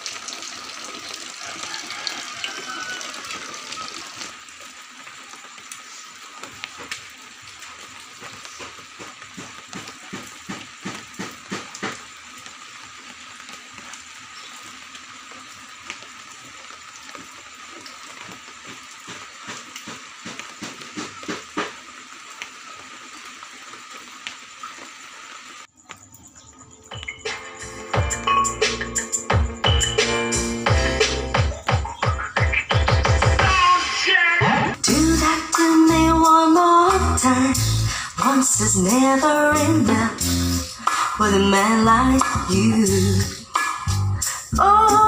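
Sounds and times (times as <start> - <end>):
steady hiss: 34.8 - 45.0.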